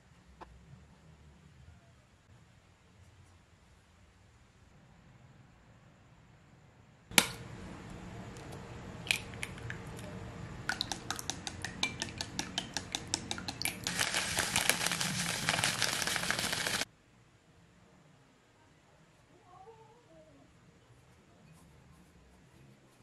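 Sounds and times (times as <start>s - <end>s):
chopsticks beating egg in glass bowl: 10.7s - 16.8s
bread crumbs poured from plastic bag: 13.8s - 16.9s.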